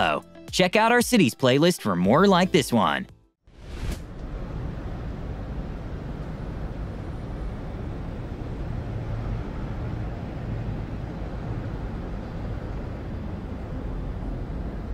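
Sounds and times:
low rumbling ambient noise: 0:03.6 - 0:14.9.

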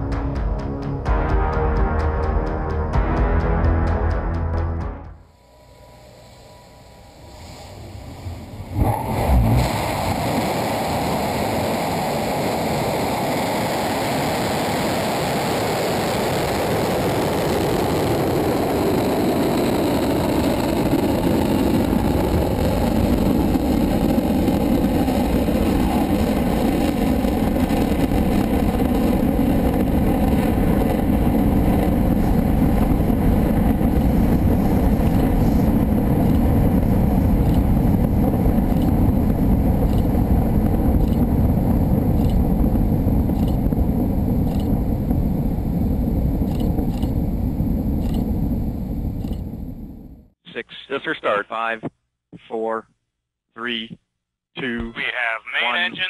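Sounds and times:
rocket engine roaring: 0:06.2 - 0:50.3.

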